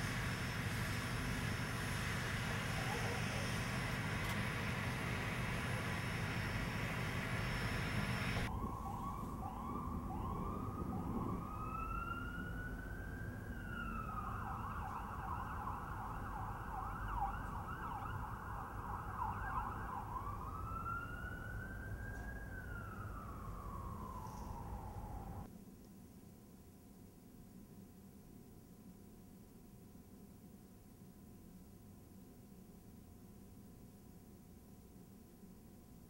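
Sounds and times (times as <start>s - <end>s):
emergency siren wailing and yelping: 2.5s - 4.7s, 7.6s - 25.5s.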